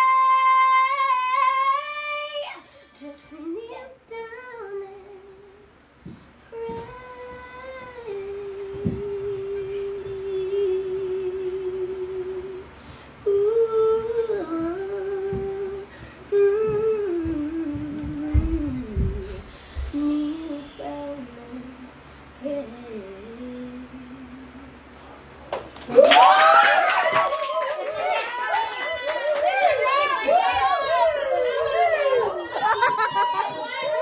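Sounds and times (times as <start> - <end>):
woman humming: 6.5 - 24.8
clapping and cheering: 25.5 - 31.6.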